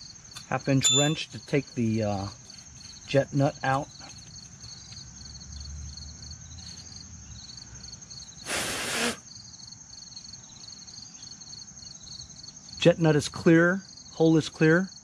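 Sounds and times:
crickets chirping: 0.0 - 15.0
short loud hiss: 8.4 - 9.3.

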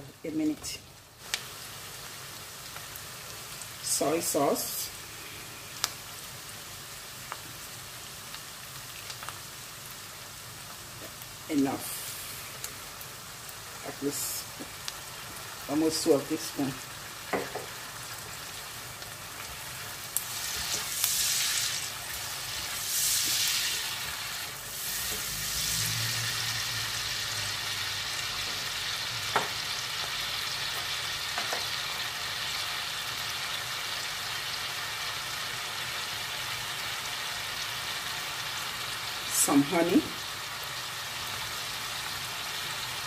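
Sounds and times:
onions sizzling in frying pan: 0.0 - 43.0.

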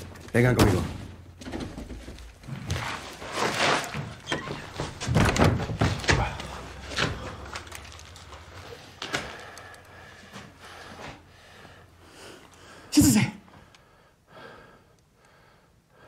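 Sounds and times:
footsteps in small room: 0.0 - 12.7.

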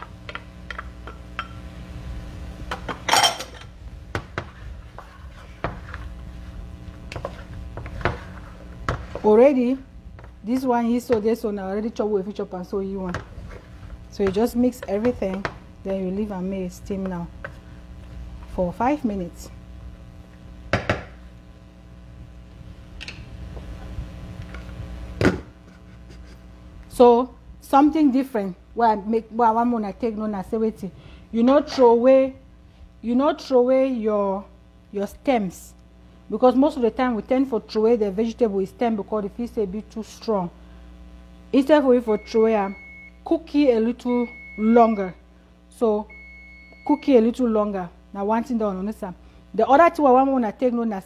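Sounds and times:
steady low hum: 0.0 - 51.0
metal cookware clinking: 3.1 - 3.7.

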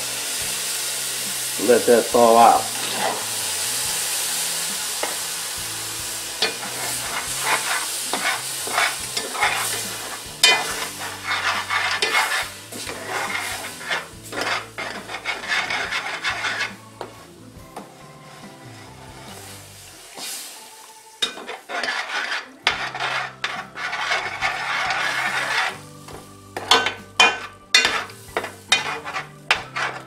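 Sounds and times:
vegetables sizzling in a pot: 0.0 - 30.0
metal spoon scraping pot: 2.5 - 3.2, 6.4 - 17.2, 21.2 - 30.0.

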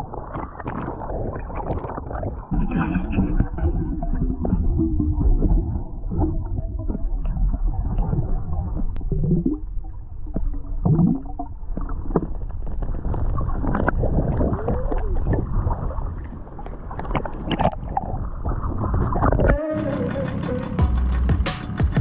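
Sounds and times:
underwater gurgling and sloshing: 0.0 - 20.8
knocks and clicks underwater: 0.2 - 20.8
wavering low tones: 19.2 - 22.0
steady tone: 19.6 - 22.0.

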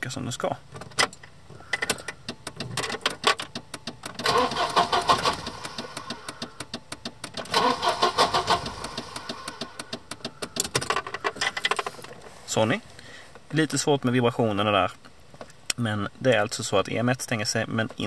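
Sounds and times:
car engine cranking: 0.7 - 12.3.

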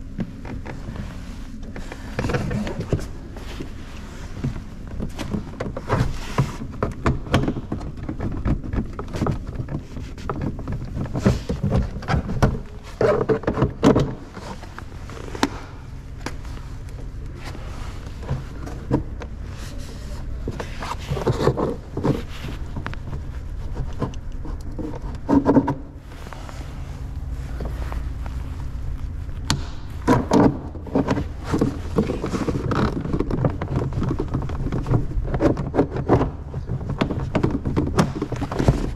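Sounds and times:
handling clicks and rustling: 0.0 - 38.9
low steady hum: 0.0 - 38.9.

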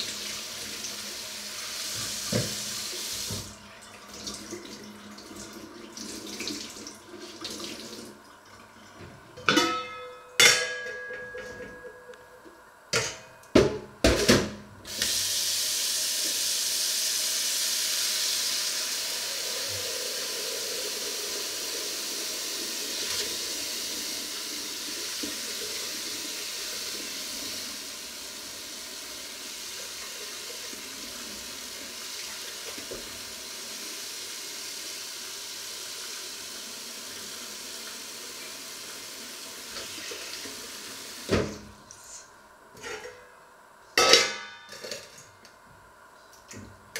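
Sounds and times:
tap water filling a metal pot: 0.0 - 9.8, 17.9 - 28.5, 29.4 - 33.5.

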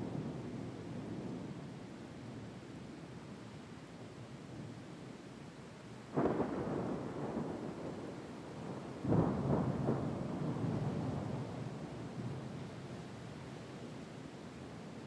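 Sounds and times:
thunder cracking and rumbling: 6.2 - 12.4.

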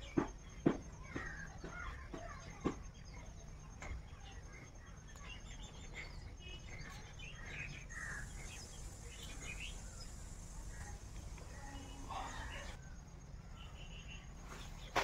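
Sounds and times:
low background hum: 0.0 - 14.9
birds chirping: 0.0 - 15.0.

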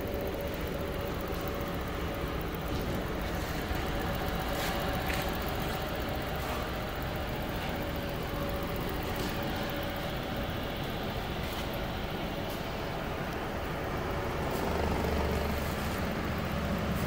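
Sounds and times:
electric fan motor humming: 0.0 - 17.0
faint steady whine: 0.0 - 17.0.

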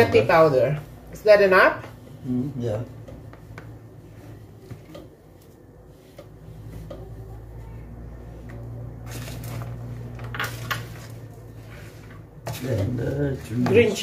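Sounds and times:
spoon scraping plastic basin: 9.0 - 14.0.

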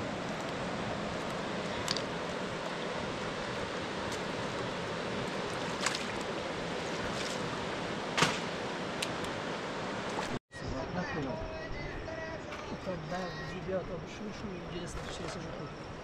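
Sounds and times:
flowing river water: 0.0 - 10.4.

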